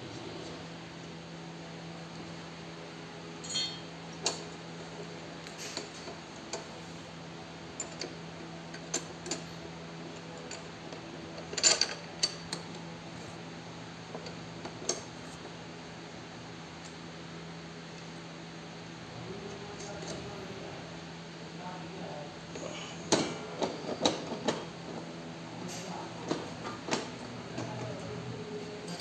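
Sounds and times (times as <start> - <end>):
metal parts clinking together: 3.4 - 4.4.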